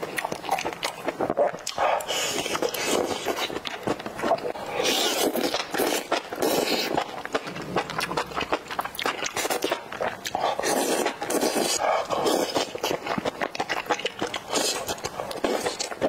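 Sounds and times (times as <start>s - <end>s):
person slurping noodles: 1.7s - 3.6s, 4.2s - 8.6s, 9.3s - 13.0s.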